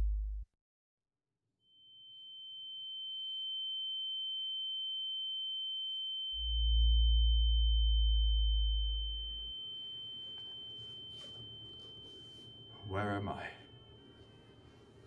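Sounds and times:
high-pitched ringing tone: 1.7s - 15.0s
deep low drone: 6.4s - 9.5s.

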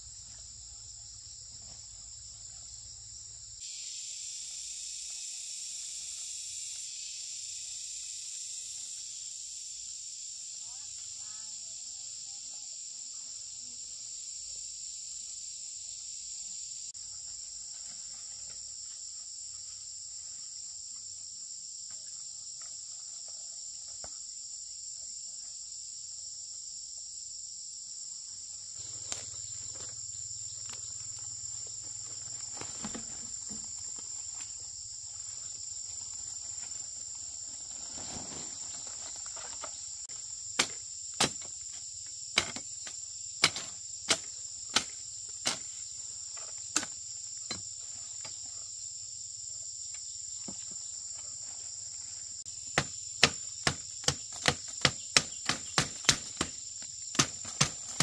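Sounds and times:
insects chirring: 0.0s - 58.0s.

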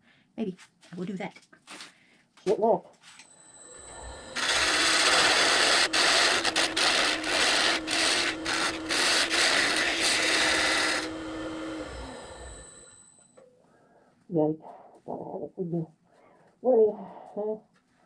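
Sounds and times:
lathe humming: 3.3s - 13.3s
lathe tool scraping wood: 3.4s - 13.1s.

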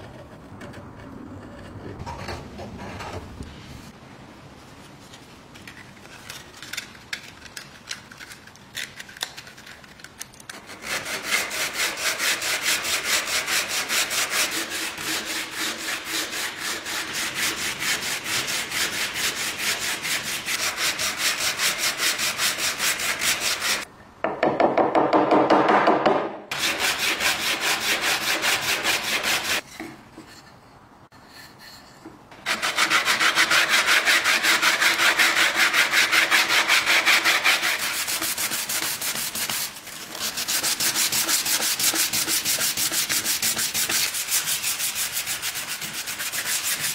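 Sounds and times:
sandpaper scrubbing metal: 10.5s - 23.9s, 26.5s - 29.6s, 32.4s - 46.9s.

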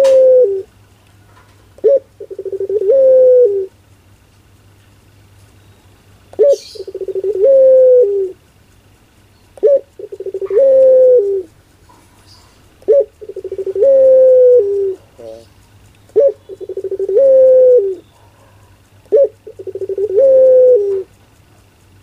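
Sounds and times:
dove cooing: 0.0s - 0.7s, 1.8s - 3.8s, 6.3s - 8.4s, 9.6s - 21.2s.

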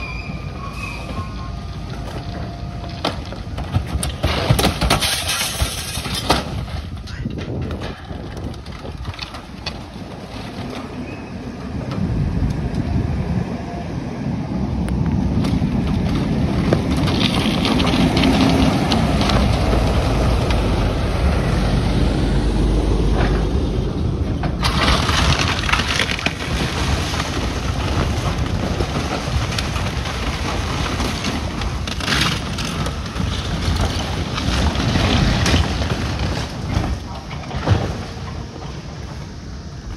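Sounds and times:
building walls crashing down: 2.0s - 11.0s, 15.4s - 21.0s, 23.1s - 39.3s
truck rumbling past: 9.6s - 31.9s.

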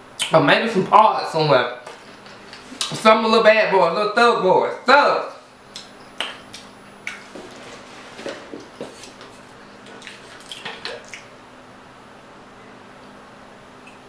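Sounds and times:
fingers licking and lips smacking: 5.7s - 7.3s, 9.8s - 11.3s.

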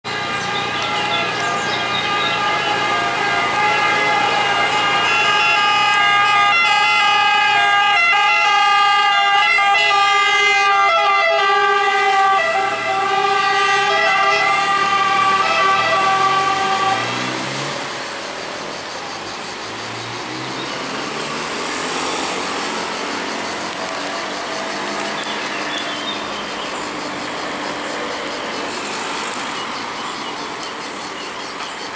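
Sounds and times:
ambulance siren: 0.0s - 17.8s
traffic: 0.0s - 31.9s
second emergency siren: 2.4s - 17.3s.

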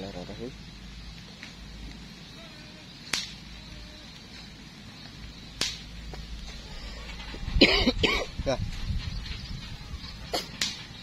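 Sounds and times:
short sharp snaps: 3.1s - 3.4s, 5.6s - 5.8s, 10.6s - 10.8s.

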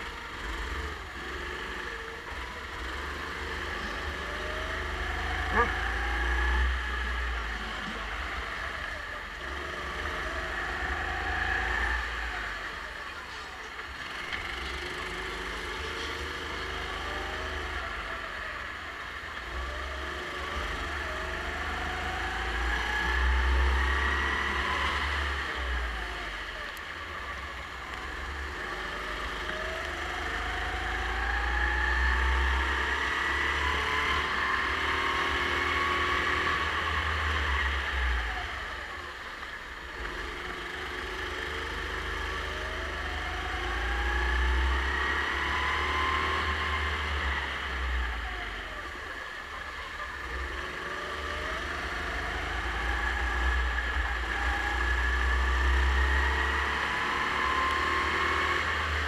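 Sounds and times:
kart engine accelerating: 0.0s - 59.0s.

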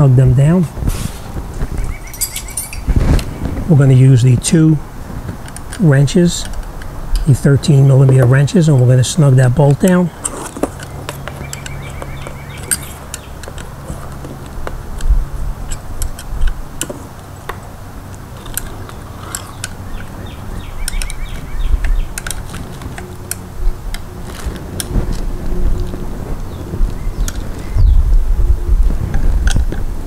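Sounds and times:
steady low hum: 0.0s - 30.0s
wrenches clicking on a bolt: 9.7s - 14.2s, 15.6s - 20.2s, 20.8s - 21.2s, 21.8s - 24.9s.

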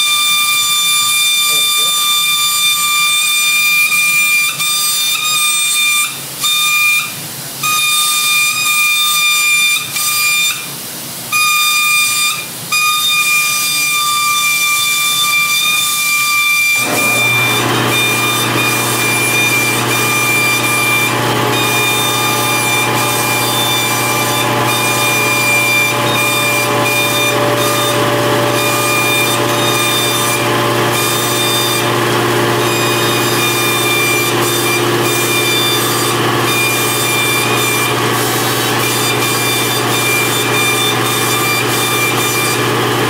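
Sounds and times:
high-pitched whistle: 0.0s - 10.7s, 11.3s - 38.0s
low machine hum: 16.8s - 43.0s.

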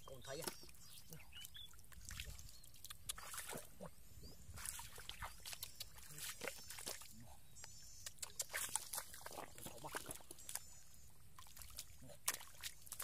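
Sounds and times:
splashing in muddy water: 0.1s - 3.9s, 4.5s - 7.2s, 8.0s - 10.8s, 11.4s - 13.0s.

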